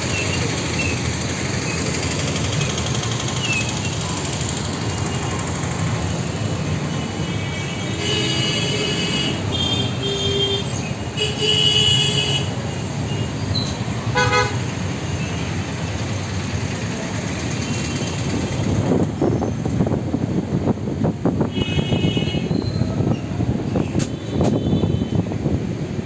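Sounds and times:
traffic rumble: 0.0 - 26.0
vehicle horns honking: 7.0 - 13.4, 14.1 - 14.8, 21.4 - 22.8, 24.1 - 25.3.

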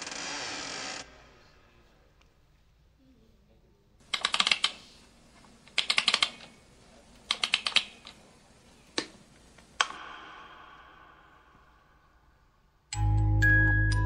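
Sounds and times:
rapid sharp clicks: 4.0 - 4.8, 5.7 - 6.6, 7.2 - 8.2, 9.7 - 11.2.

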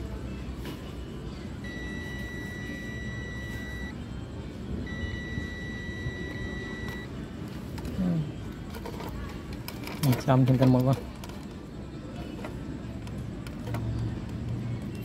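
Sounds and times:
continuity tester beeping: 1.6 - 4.0, 4.8 - 7.2.

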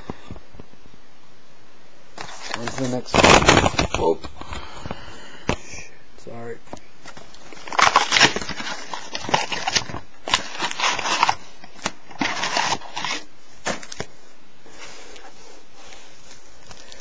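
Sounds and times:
wrappers rustling and crinkling: 2.2 - 4.2, 7.0 - 14.1.

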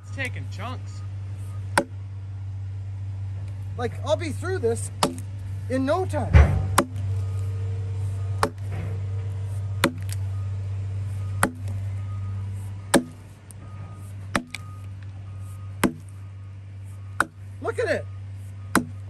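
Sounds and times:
low hum: 0.0 - 19.0
axe chopping into a log: 1.8 - 2.0, 5.0 - 5.3, 6.4 - 7.0, 8.4 - 8.7, 9.8 - 10.2, 11.4 - 11.8, 12.9 - 13.2, 14.3 - 14.7, 15.8 - 16.2, 17.2 - 17.4, 18.7 - 19.0.

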